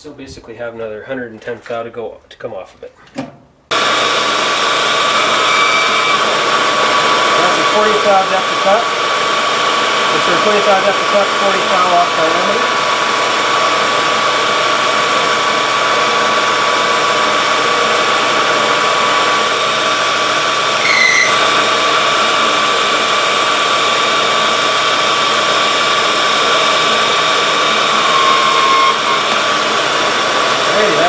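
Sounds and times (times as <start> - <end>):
metal lathe whirring: 3.7 - 31.0.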